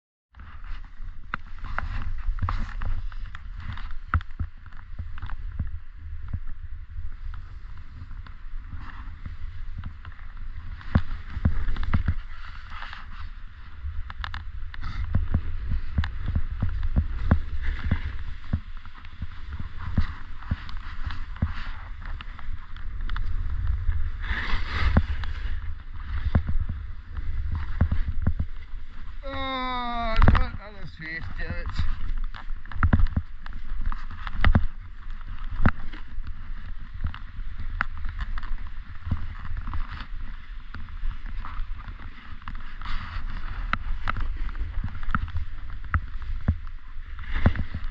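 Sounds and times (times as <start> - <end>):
skis scraping snow: 0.4 - 47.9
wind buffeting microphone: 0.4 - 47.9
edges scraping over snow: 23.3 - 26.5.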